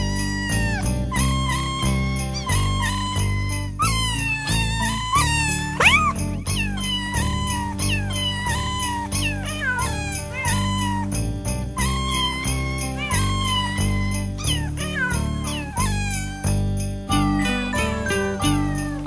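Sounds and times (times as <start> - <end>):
backing track with bass and chords: 0.0 - 8.4, 9.1 - 19.0
cat meows sung as a tune: 0.0 - 11.1, 11.8 - 16.5, 18.3 - 19.0.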